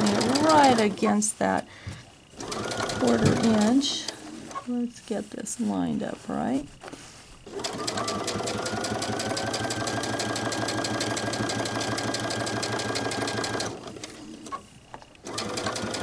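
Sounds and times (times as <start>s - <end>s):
sewing machine stitching: 0.0s - 1.1s, 2.3s - 4.6s, 7.4s - 16.0s.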